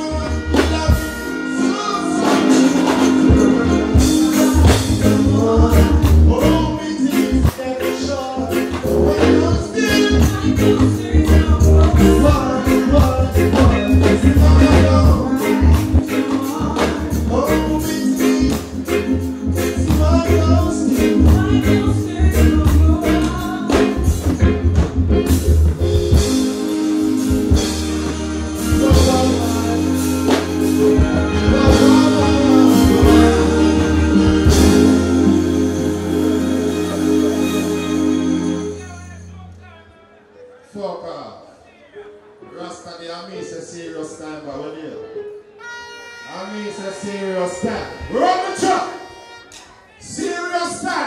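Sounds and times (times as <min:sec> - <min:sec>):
man singing: 0:00.0 - 0:25.3, 0:27.5 - 0:39.9
live reggae band music: 0:00.0 - 0:51.0.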